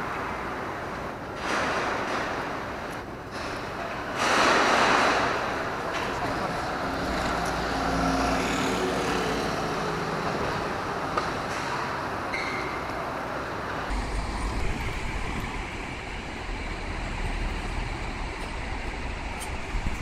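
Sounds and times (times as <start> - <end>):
steady roadway noise: 0.0 - 20.0
bus engine passing by: 5.2 - 20.0.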